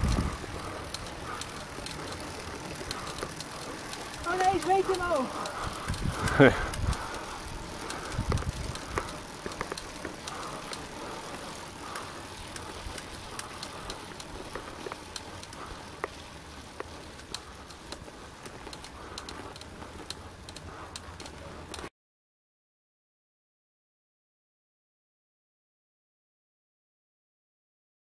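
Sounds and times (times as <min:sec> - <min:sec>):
wind noise: 0:00.0 - 0:01.3, 0:04.4 - 0:09.3
bike tyres rolling on asphalt: 0:00.0 - 0:21.9
light clicks: 0:16.8 - 0:21.9.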